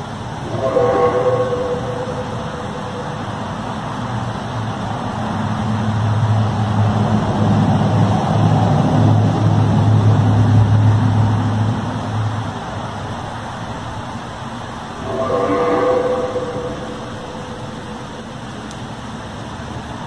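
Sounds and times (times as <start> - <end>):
low droning hum: 0.0 - 8.4, 13.6 - 19.6
constant rushing background: 0.0 - 20.0
faint higher tone: 0.4 - 3.8, 14.9 - 18.4.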